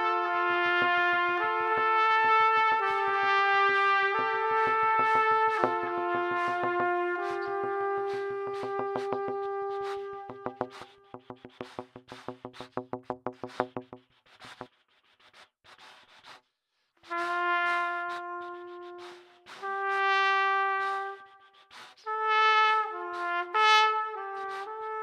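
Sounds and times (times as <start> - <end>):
trumpet long held notes: 0.0 - 11.2, 17.1 - 25.0.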